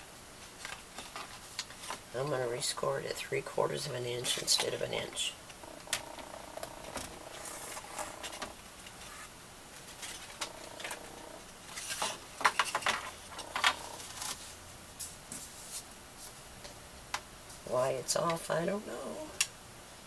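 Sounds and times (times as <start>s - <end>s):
paper rustling: 7.3s - 11.0s, 11.7s - 14.6s.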